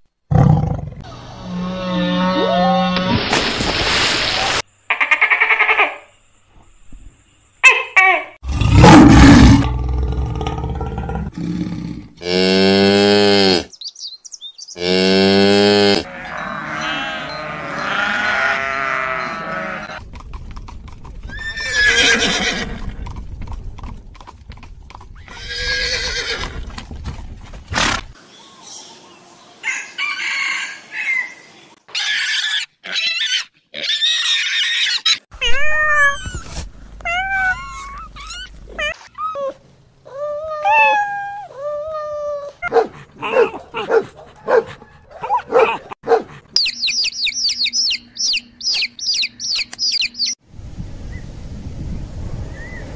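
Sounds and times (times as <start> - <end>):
horse whinnies and snorts: 21.3 - 23.1, 25.2 - 26.7.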